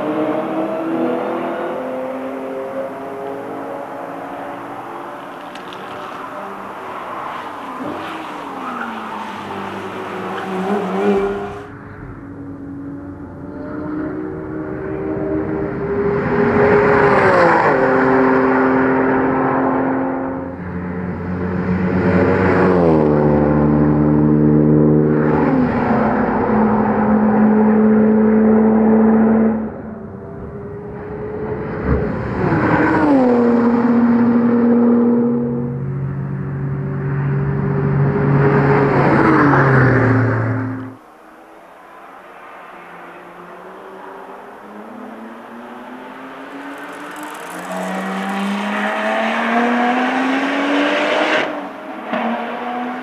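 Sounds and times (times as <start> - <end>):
cars passing at speed: 0.0 - 53.0.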